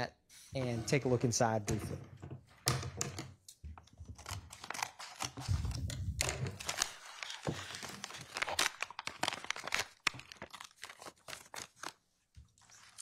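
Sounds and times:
wrapping crinkling: 0:04.1 - 0:13.0.

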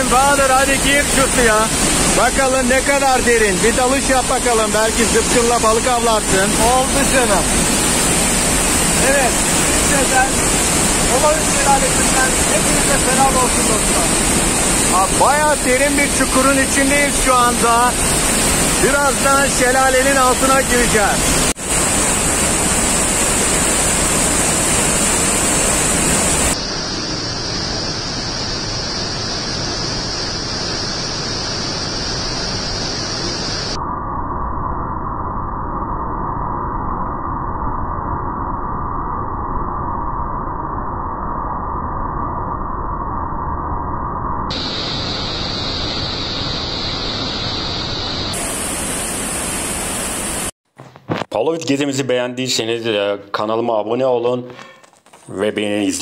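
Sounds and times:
waterfall rushing: 0:00.0 - 0:26.6, 0:48.3 - 0:50.5.

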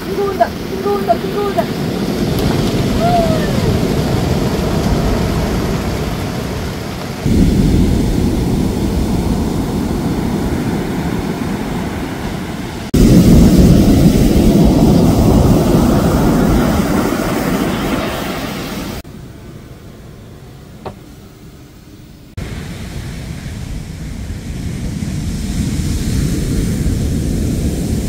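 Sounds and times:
heavy surf rumbling: 0:00.0 - 0:28.0.

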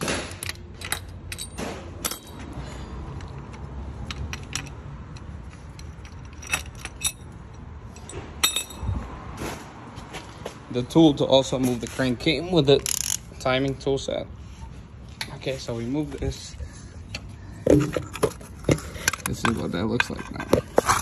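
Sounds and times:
metal tools clinking: 0:00.4 - 0:08.9, 0:17.7 - 0:21.0.

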